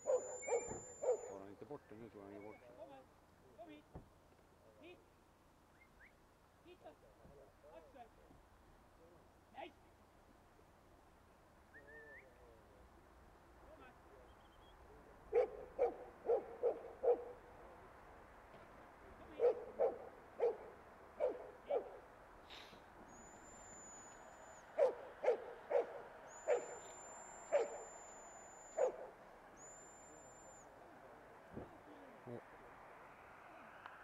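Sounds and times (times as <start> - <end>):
dog barking: 0.0 - 1.4, 15.3 - 17.4, 19.3 - 22.1, 24.7 - 26.9, 27.5 - 27.8, 28.8 - 29.2.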